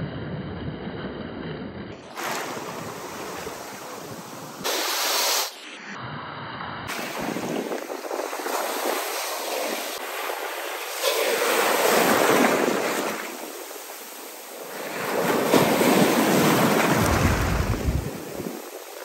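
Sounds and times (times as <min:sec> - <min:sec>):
waves breaking on beach: 0:02.0 - 0:05.6, 0:06.9 - 0:19.0.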